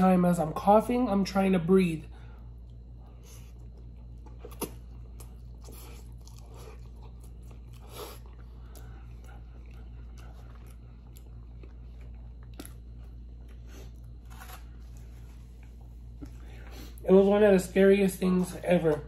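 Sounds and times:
low hum: 0:00.0 - 0:19.0
close-up chewing: 0:02.2 - 0:17.1.

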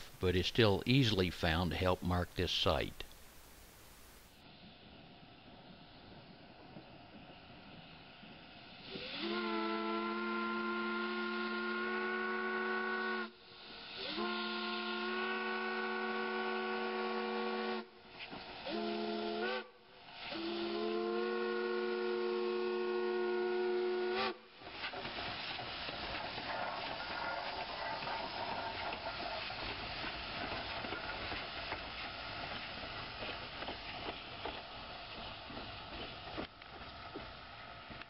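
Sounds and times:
steam hissing: 0:00.0 - 0:38.0
steam locomotive whistle blasts: 0:08.8 - 0:18.0, 0:18.6 - 0:24.5.

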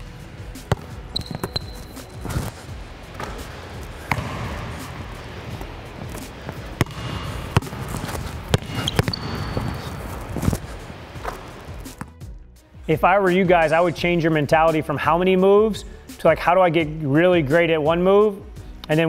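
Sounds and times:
basketball bouncing on wooden floor: 0:00.6 - 0:02.5, 0:03.1 - 0:12.2
sneaker squeaks: 0:00.6 - 0:12.2.

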